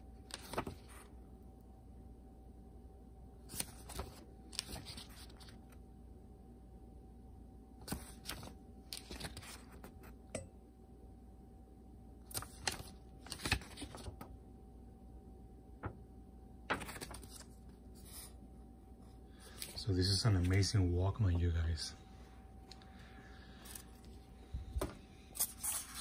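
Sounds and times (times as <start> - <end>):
paper pages flipping: 0.1 - 1.1, 3.4 - 5.8, 7.8 - 10.2, 12.2 - 14.3, 16.7 - 18.4, 19.4 - 20.7, 23.5 - 26.0.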